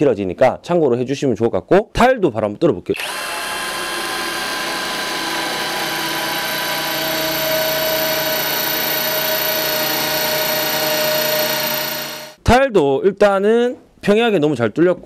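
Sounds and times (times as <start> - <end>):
impact driver drilling tile: 3.0 - 12.4.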